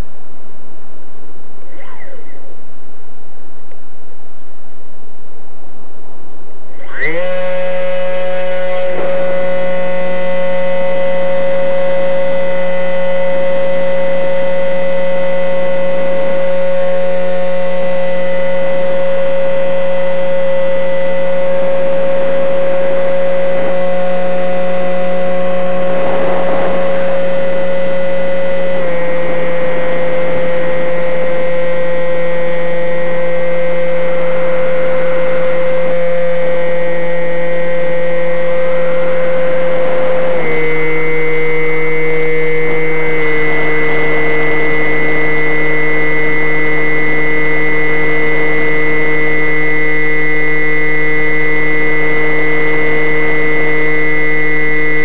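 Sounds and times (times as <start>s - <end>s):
model airplane motor whine: 1.6s - 2.8s, 6.7s - 55.0s
brief rush of noise: 25.2s - 29.0s.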